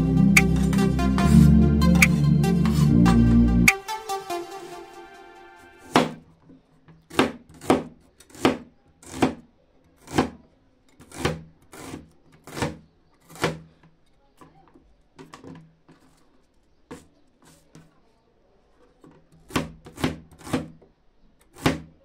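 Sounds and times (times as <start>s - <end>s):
knife slicing onion: 7.1s - 9.4s, 10.0s - 10.4s, 11.0s - 13.6s, 19.5s - 20.7s.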